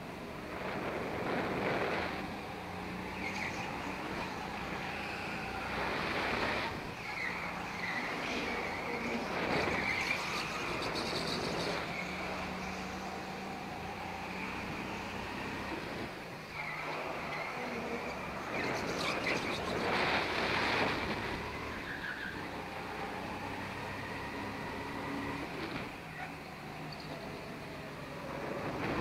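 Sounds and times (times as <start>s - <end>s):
go-kart engine drone: 0.0s - 29.0s
rushing wind noise: 0.0s - 29.0s
high squeal: 3.0s - 15.6s.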